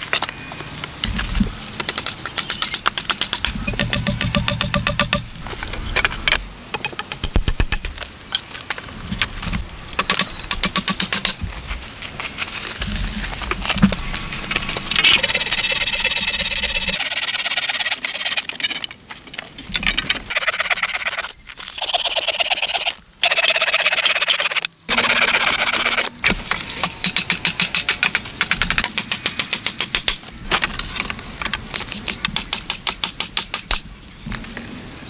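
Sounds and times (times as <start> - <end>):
hand saw cutting wood: 15.2 - 18.8.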